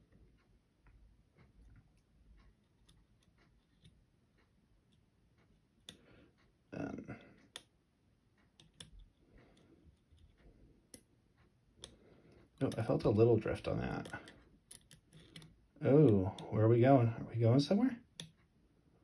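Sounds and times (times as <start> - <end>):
lock pick clicks: 14.0 - 16.2.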